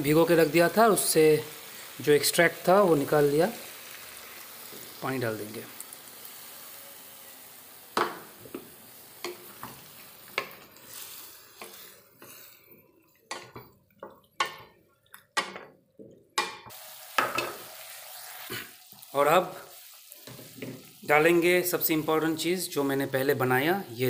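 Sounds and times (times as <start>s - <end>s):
vegetables sizzling in pan: 0.0s - 12.7s, 16.7s - 24.0s
wooden spatula knocking and scraping pan: 13.3s - 17.6s.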